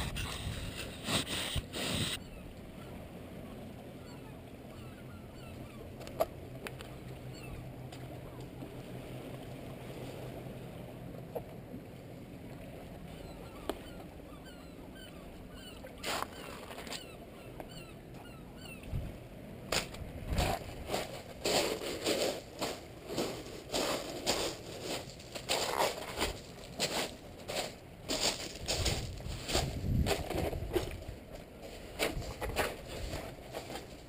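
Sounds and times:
wind buffeting microphone: 0.0 - 2.2, 18.9 - 19.2, 20.0 - 22.8, 23.7 - 34.0
footsteps on rock: 20.9 - 31.0.

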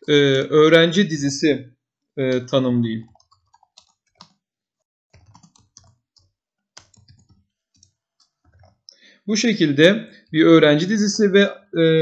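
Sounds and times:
faint keyboard typing: 2.3 - 4.4, 5.1 - 9.0.

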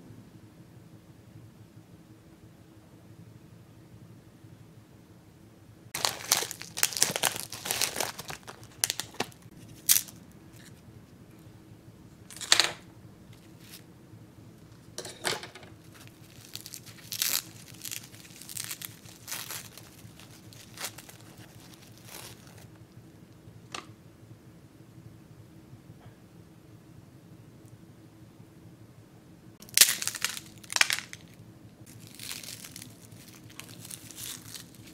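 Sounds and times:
paper wrapper crinkling: 6.0 - 10.8, 15.7 - 22.7, 29.6 - 34.9.

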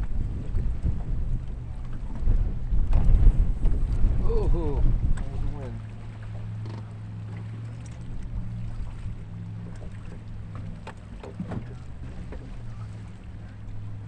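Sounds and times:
boat humming: 0.0 - 14.0
small clicks and knocks: 6.6 - 6.9.

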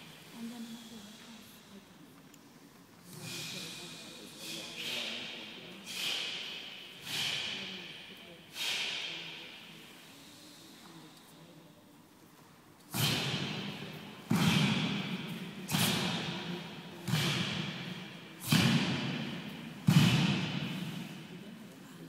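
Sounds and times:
sharp thuds echoing in a hall: 3.1 - 10.0, 12.8 - 21.8.

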